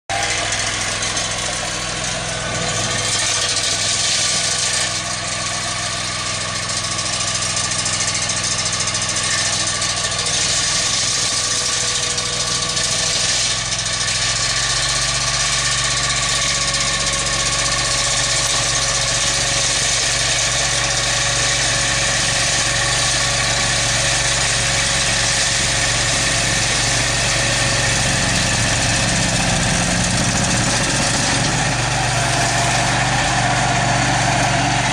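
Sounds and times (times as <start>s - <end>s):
tractor engine running: 0.1s - 34.9s.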